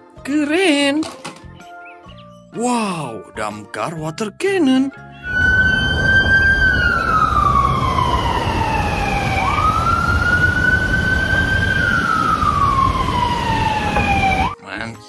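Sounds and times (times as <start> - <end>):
low rumble: 5.2 - 14.5
fire truck siren wailing: 5.2 - 14.6.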